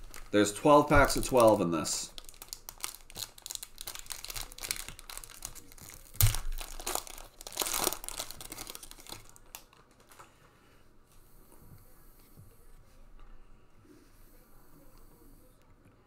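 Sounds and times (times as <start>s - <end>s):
foil wrapper tearing and crinkling: 0.0s - 10.2s.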